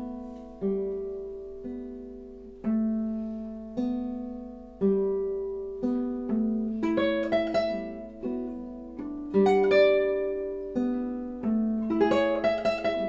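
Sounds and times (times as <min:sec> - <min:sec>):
classical guitar fingerstyle: 0:00.0 - 0:13.0.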